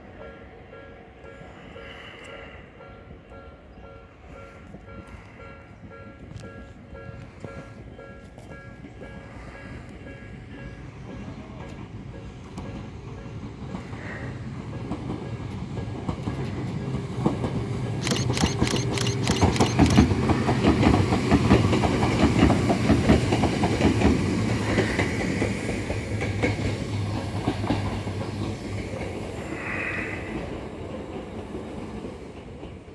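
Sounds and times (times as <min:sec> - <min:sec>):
electric train running hum: 0:00.0 - 0:32.9
train wheels clacking over rail joints: 0:08.4 - 0:32.9.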